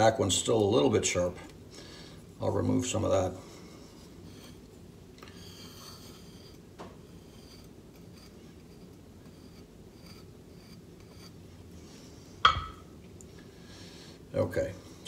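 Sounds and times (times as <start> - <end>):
razor scraping on whetstone: 5.4 - 11.4.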